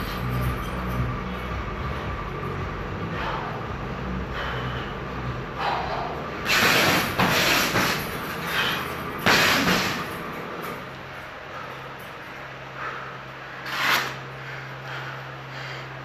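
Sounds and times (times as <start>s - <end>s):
steady low hum: 0.0s - 16.0s
punches on heavy bag: 6.5s - 8.2s, 9.2s - 10.2s.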